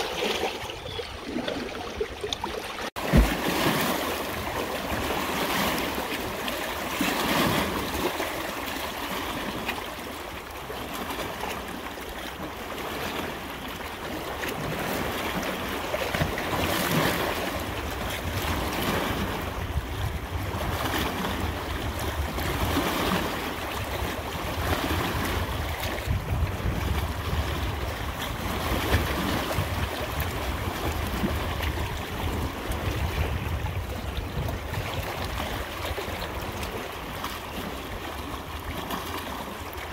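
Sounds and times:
water rushing: 0.0 - 19.5.

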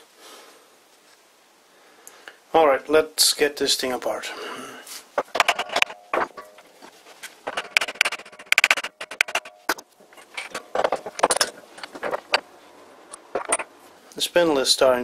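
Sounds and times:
metal clinks and knocks: 5.2 - 13.8.

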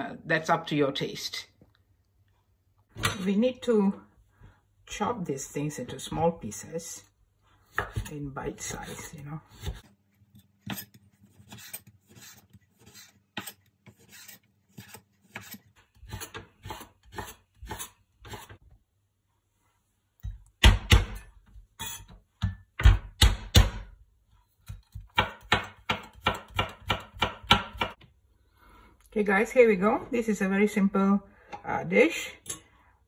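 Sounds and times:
knife chopping on wooden board: 7.7 - 8.1, 12.8 - 18.6, 24.7 - 28.0.

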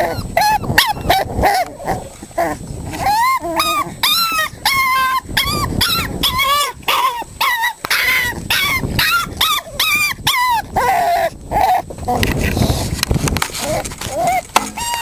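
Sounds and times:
puppies yipping: 0.0 - 1.7, 3.0 - 11.8, 13.6 - 15.0.

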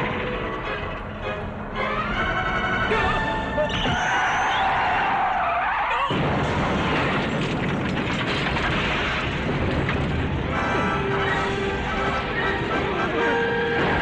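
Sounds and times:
loud explosion roar: 6.1 - 12.1.

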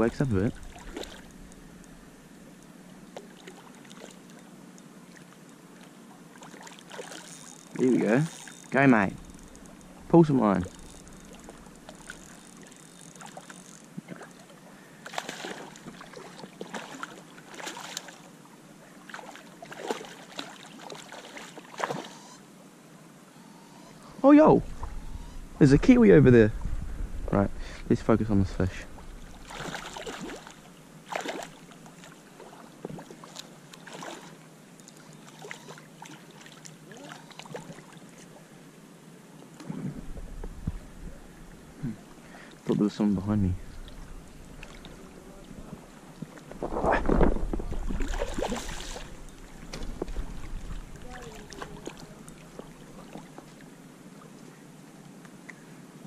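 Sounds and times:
fish splashing in water: 0.5 - 1.5, 6.4 - 10.0, 10.6 - 18.3, 19.0 - 22.2, 29.1 - 38.0, 47.6 - 53.7
faint ticks: 7.0 - 10.0, 10.6 - 14.1.

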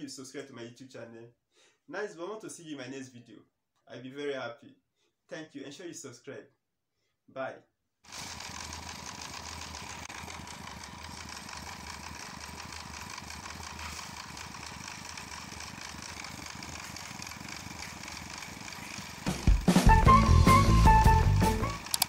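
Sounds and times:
concrete mixer engine running: 8.1 - 22.0.

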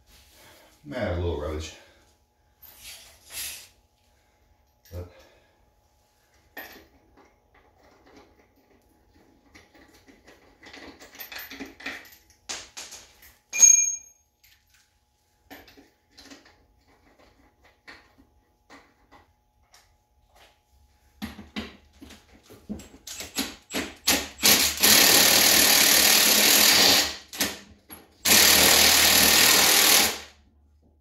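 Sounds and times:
ringing metal clink: 13.5 - 14.6
impact driver bursts: 23.2 - 30.3.

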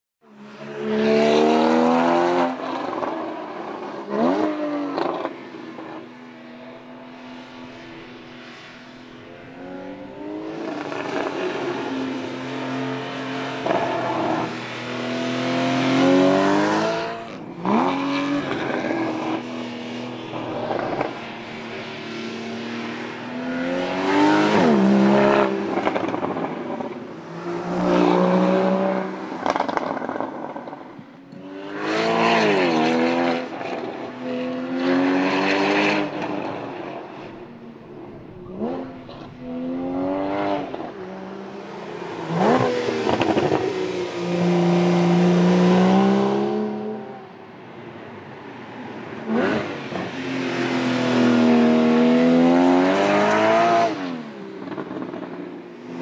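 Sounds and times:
car engine revving hard: 42.0 - 47.2, 50.7 - 54.2.

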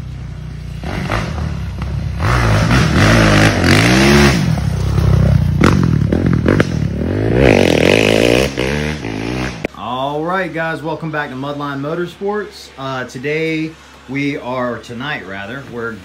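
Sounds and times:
motorcycle engine revving: 0.0 - 9.8.

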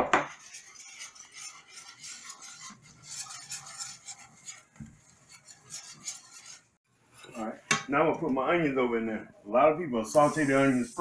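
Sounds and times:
whisk scraping a metal skillet: 0.2 - 7.4.

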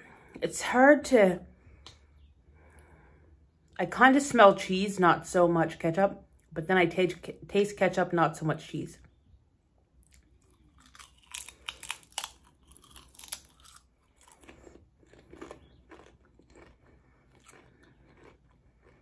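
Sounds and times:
potato chip crunching and chewing: 10.0 - 19.0.

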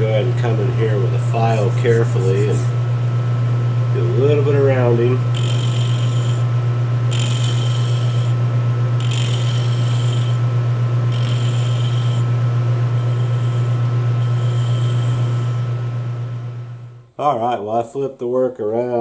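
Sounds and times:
metal lathe humming: 0.0 - 17.0
high squeal of tool on spinning metal: 5.3 - 6.5, 7.1 - 8.4, 9.0 - 10.4, 11.1 - 15.7.

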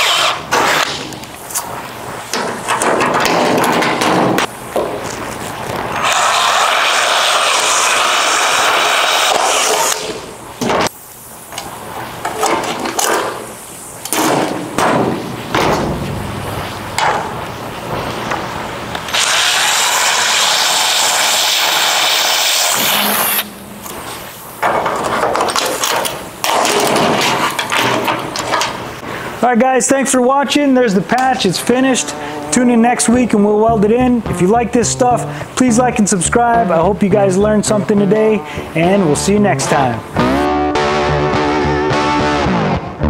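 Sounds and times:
drill boring through sheet steel: 0.0 - 0.5, 6.0 - 10.0, 19.1 - 23.5
clamps knocking and clattering: 2.3 - 5.0, 24.6 - 28.8.

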